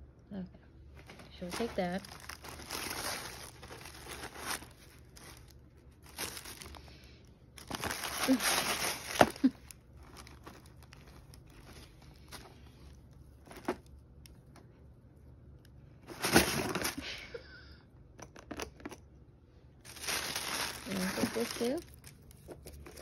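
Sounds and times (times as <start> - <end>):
tissue paper and plastic crinkling: 0.9 - 13.9, 16.0 - 17.2, 19.8 - 23.0.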